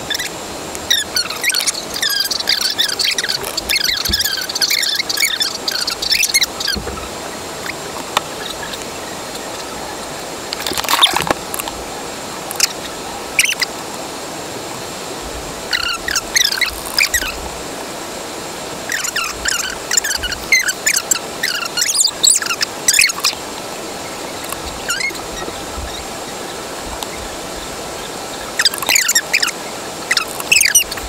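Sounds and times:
steady hiss: 0.0s - 31.0s
sped-up squeaky voice chatter: 0.1s - 6.8s, 24.4s - 31.0s.

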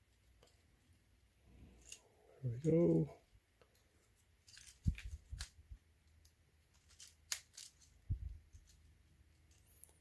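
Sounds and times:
plastic toy parts clicking: 4.4s - 10.0s.

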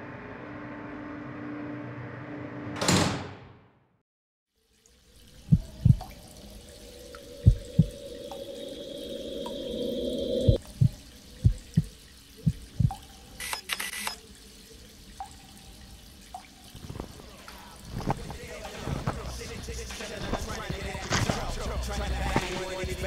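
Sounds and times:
water dripping in hollow plops: 4.6s - 9.7s, 10.5s - 13.4s, 14.2s - 18.5s.

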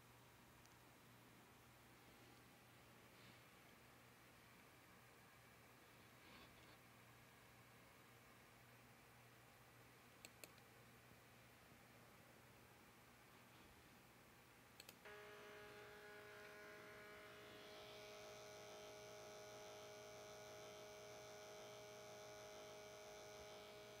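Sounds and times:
quick clicks: 14.8s - 15.0s
stepper motor humming: 15.1s - 24.0s.

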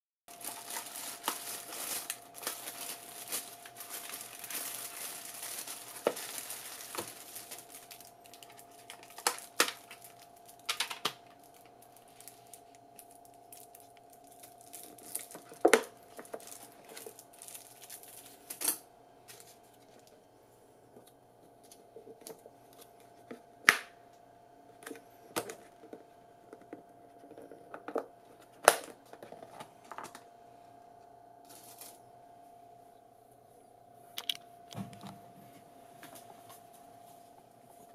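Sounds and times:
plastic bag crinkling: 0.3s - 20.2s, 31.4s - 32.0s
faint steady hum: 0.3s - 37.9s.

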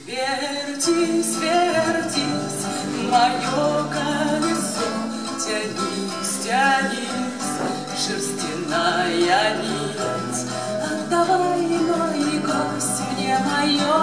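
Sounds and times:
acoustic guitar: 0.0s - 14.0s
woman singing: 0.0s - 14.0s.

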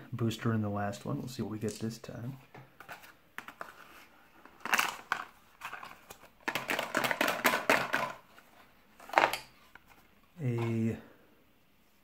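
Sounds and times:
dice clattering onto clipboard: 6.4s - 8.2s.

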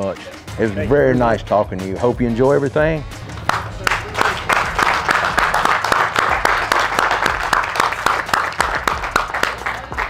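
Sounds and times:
small group clapping: 3.2s - 10.0s.

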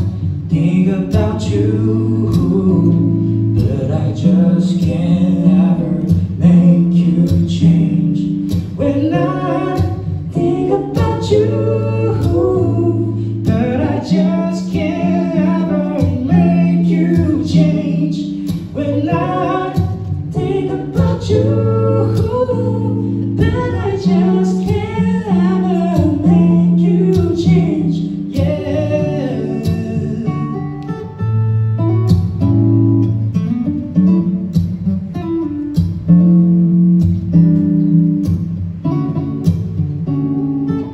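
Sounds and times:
man singing: 0.0s - 30.7s
strummed acoustic guitar: 0.0s - 40.9s.

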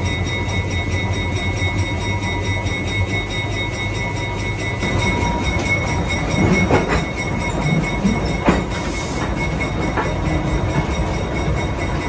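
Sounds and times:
train rumbling slowly: 0.0s - 12.0s
wheels knocking over rail joints: 4.8s - 12.0s.

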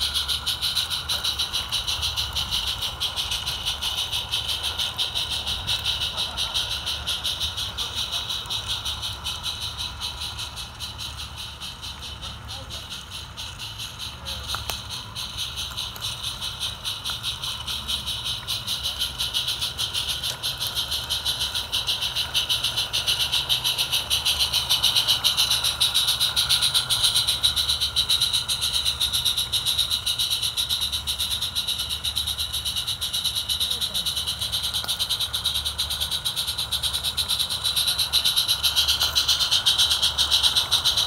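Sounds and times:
steam hissing: 0.0s - 41.0s
steam locomotive chuffing: 0.0s - 41.0s.

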